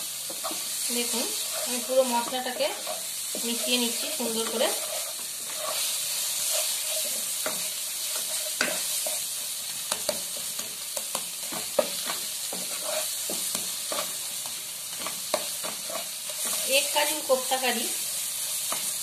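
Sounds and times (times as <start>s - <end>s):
spatula scraping and tapping pan: 0.0s - 17.7s, 18.6s - 19.0s
food sizzling in oil: 0.0s - 19.0s.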